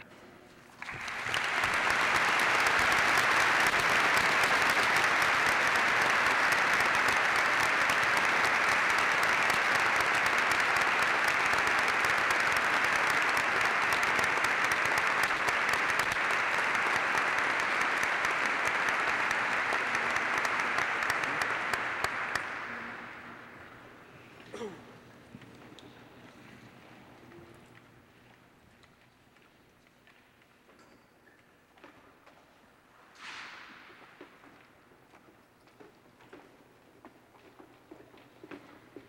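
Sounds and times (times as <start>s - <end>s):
audience applauding: 0.8s - 23.7s.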